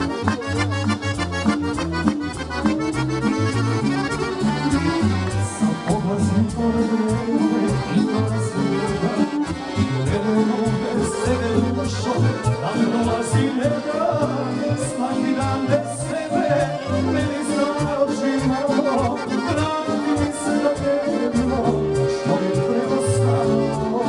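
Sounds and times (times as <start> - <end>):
button accordions playing a tune: 0.0 - 24.0
man singing into a microphone: 4.9 - 24.0.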